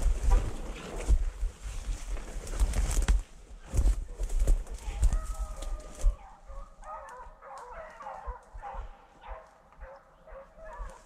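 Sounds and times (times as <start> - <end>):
footfalls crunching through dry brush: 0.0 - 11.0
dogs yelping and baying: 5.4 - 11.0.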